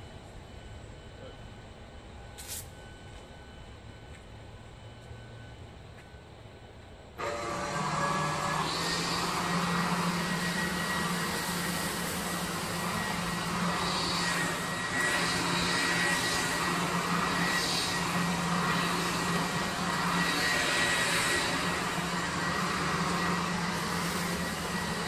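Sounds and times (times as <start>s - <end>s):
leaf blower running: 7.2s - 25.0s.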